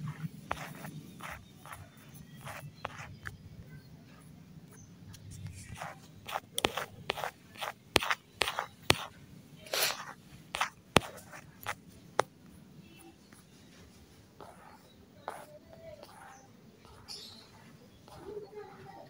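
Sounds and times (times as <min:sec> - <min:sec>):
short scrapes: 0:09.7 - 0:11.4.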